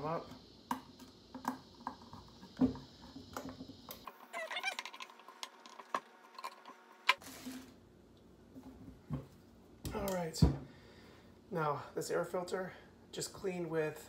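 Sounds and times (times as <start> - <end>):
wavering squawk-like sound: 4.2 - 5.1.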